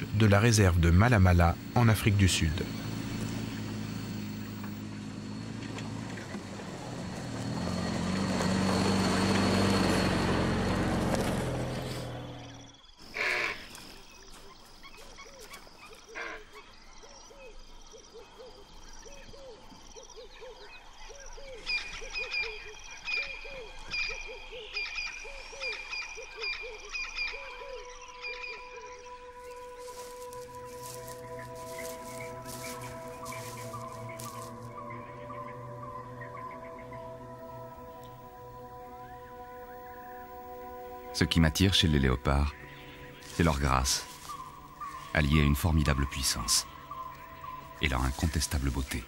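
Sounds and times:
repeating short night calls: 0.0s - 10.8s, 24.8s - 49.0s
off-road vehicle engine: 0.0s - 13.0s, 28.8s - 49.0s
high chirping: 27.2s - 49.0s.

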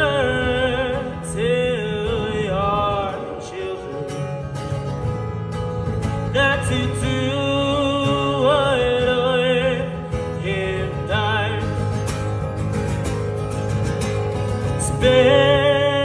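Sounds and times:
man singing into microphone: 0.0s - 4.6s, 6.2s - 12.0s, 14.7s - 16.0s
acoustic guitar strumming: 0.0s - 16.0s.

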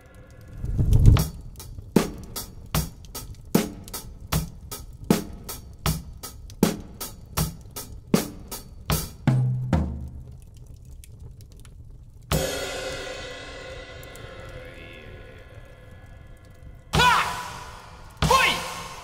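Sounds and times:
low boom: 0.0s - 1.4s
slow steady drum beat: 0.0s - 10.3s, 12.3s - 15.3s, 17.0s - 19.0s.

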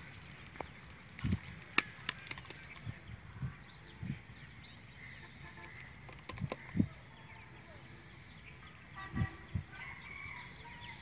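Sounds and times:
small fish flapping: 0.0s - 3.0s, 5.6s - 6.8s
fish trap clicking and knocking: 1.2s - 2.8s, 5.5s - 6.8s.

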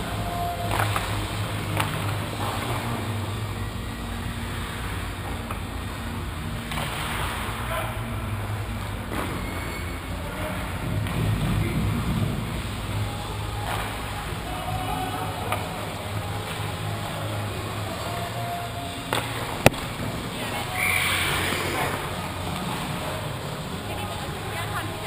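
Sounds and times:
arena crowd noise: 0.0s - 25.0s
low hum: 0.0s - 25.0s.

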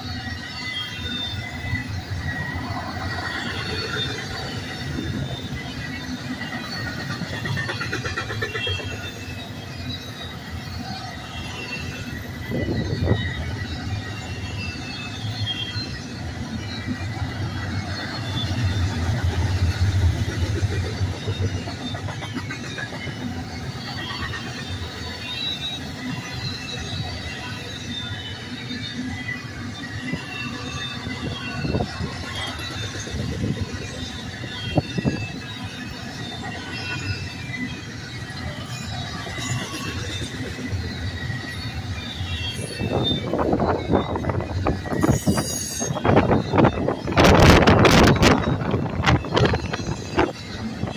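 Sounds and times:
freight train wheels clattering: 1.1s - 28.0s.

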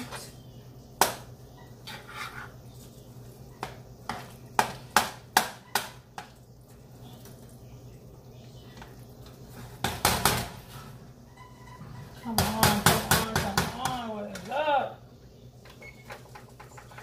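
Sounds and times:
utensil knocking against a pot: 12.3s - 14.5s.

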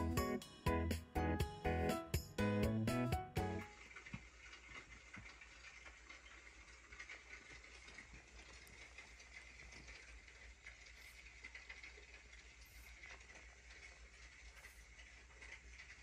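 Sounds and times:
background music: 0.0s - 3.7s.

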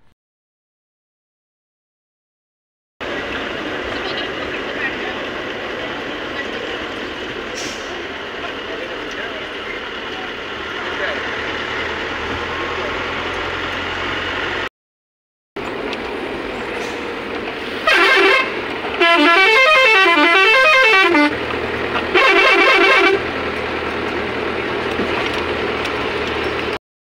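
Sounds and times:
bus engine and road noise: 3.0s - 14.7s, 15.6s - 26.8s
musical horn warbling: 17.8s - 21.4s, 22.1s - 23.2s.

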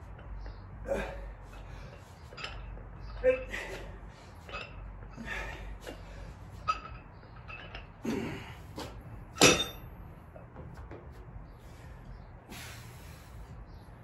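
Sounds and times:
iron plates clinking: 1.5s - 8.0s, 9.2s - 10.0s
dumbbells clanking down: 9.3s - 9.9s.

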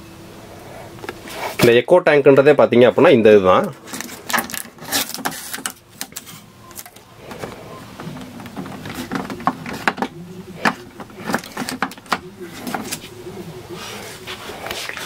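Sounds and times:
plastic wrapping crinkling: 3.7s - 13.1s.

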